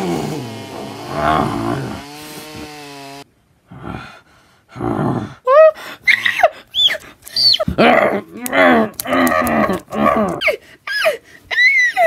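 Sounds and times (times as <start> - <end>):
chainsaw engine revving: 0.0 - 3.3.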